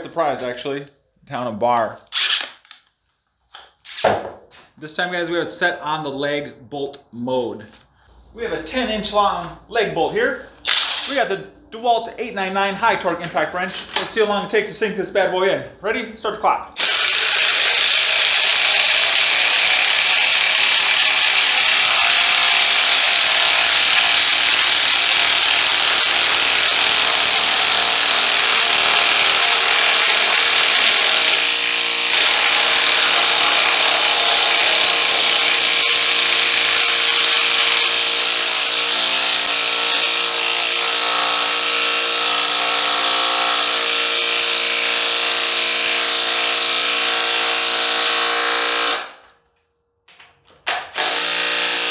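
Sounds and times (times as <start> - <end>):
impact wrench hammering: 10.6 - 11.2, 16.8 - 49.2, 50.6 - 51.9.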